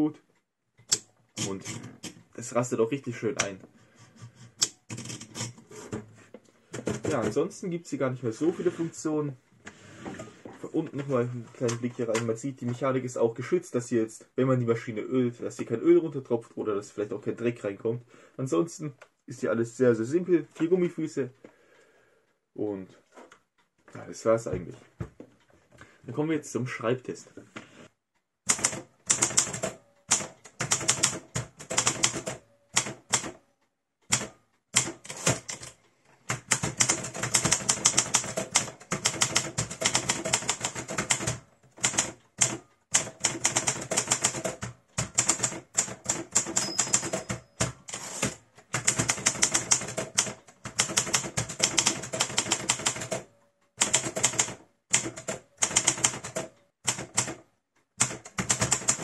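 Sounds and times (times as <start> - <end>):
typewriter typebar strikes: 41.8 - 57.3.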